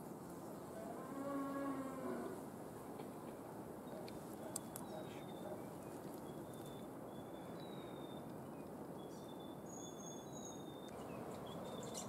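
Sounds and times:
forest background hiss: 0.0 - 12.0.

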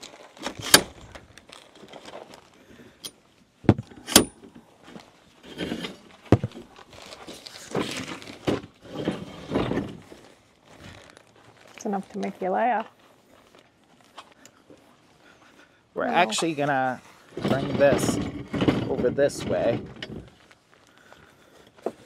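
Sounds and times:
rustling and shuffling: 0.0 - 22.0
camping gear knocks and clicks: 3.0 - 4.7, 5.8 - 6.8.

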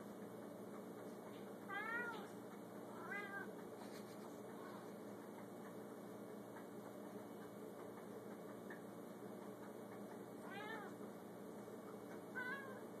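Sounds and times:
cat meowing: 1.7 - 2.3, 10.5 - 10.9, 12.4 - 12.8.

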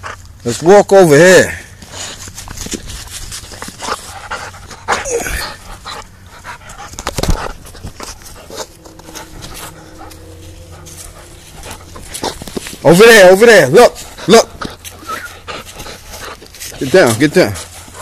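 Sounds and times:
dog panting: 0.0 - 0.3, 1.8 - 18.0.

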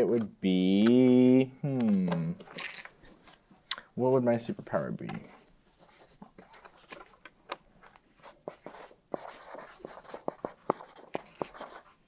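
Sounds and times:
marker scratching on board: 4.7 - 7.2, 8.0 - 12.0
marker tapping on board: 8.4 - 11.8.

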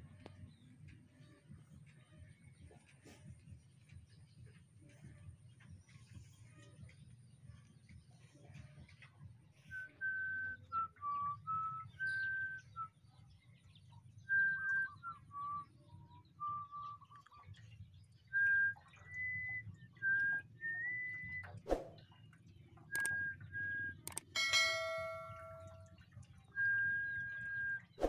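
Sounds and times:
person whistling a slow tune: 9.7 - 13.0, 14.3 - 15.7, 18.3 - 21.4, 23.0 - 24.2, 26.6 - 27.9
sharp click: 22.9 - 23.2, 24.0 - 24.4
low steady hum: 22.9 - 27.8.

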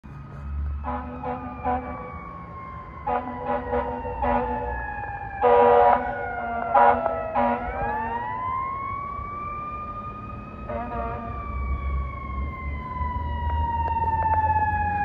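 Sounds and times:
siren wailing: 0.1 - 15.0
air horn blasts: 0.8 - 2.1, 3.1 - 4.8, 5.4 - 8.0, 10.7 - 11.4.

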